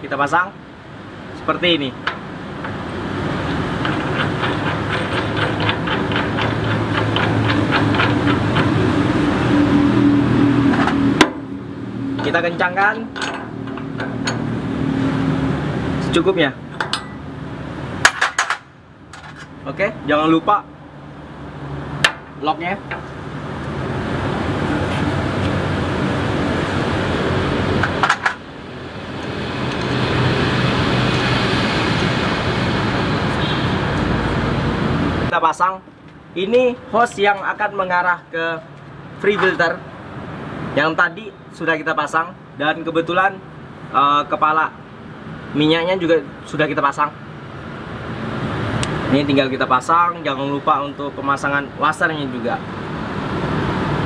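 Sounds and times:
engine humming: 0:00.8 - 0:19.6
ticking clatter: 0:03.8 - 0:08.9.

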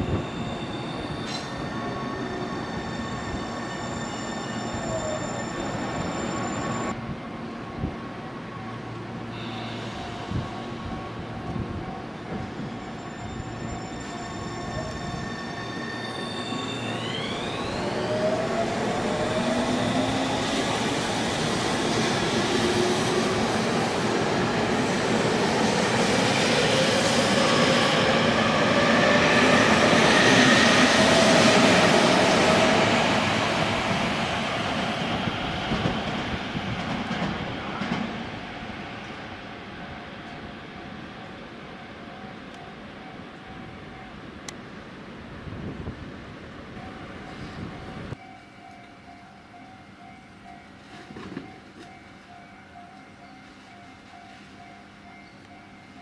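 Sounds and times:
traction motors whining: 0:12.3 - 0:21.0.

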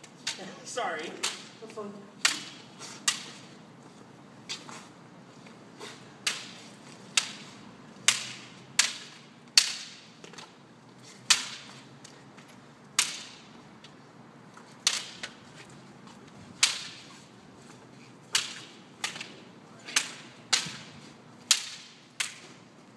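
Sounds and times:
sticks clacking together: 0:21.5 - 0:22.6.

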